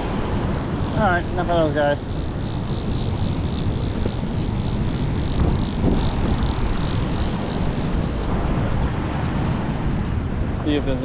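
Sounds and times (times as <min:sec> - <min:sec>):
fishing reel ratchet clicking: 0:00.4 - 0:08.8.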